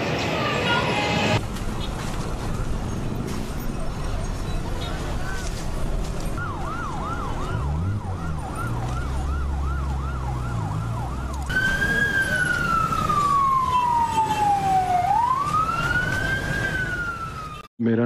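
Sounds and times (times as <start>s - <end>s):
siren slow wail: 6.3s - 17.7s.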